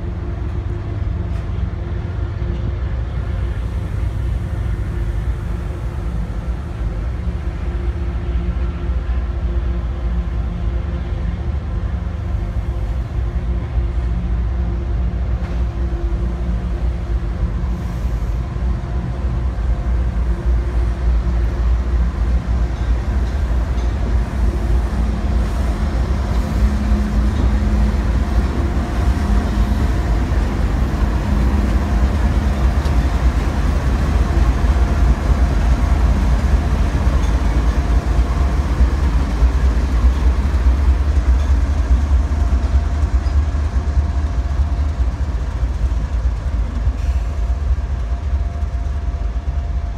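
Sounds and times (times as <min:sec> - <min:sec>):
diesel locomotive engines droning: 0:00.0 - 0:49.9.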